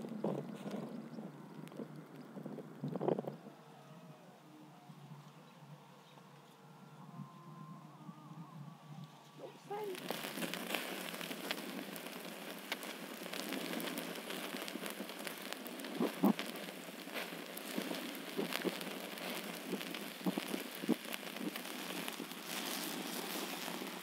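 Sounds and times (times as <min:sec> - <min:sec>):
fire pops: 0:00.0 - 0:03.5, 0:09.0 - 0:24.0
wood fire crackling and sizzling: 0:00.0 - 0:24.0.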